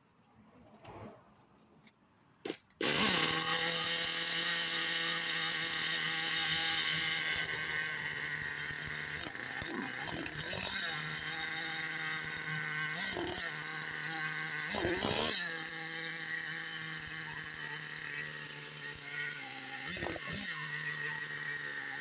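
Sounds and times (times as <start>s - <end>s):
small nitro engine idling and revving: 2.8s - 22.0s.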